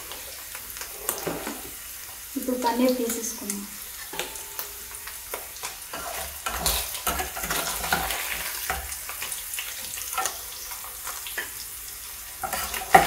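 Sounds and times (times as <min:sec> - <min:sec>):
cheese sizzling in hot oil: 0:00.0 - 0:13.0
spoon scraping metal pan: 0:04.1 - 0:08.9.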